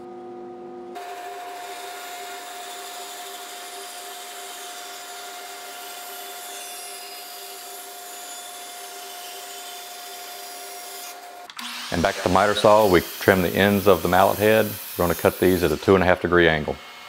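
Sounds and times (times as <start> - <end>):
bandsaw whirring: 1.0 - 17.0
saw blade hissing in wood: 10.9 - 16.2.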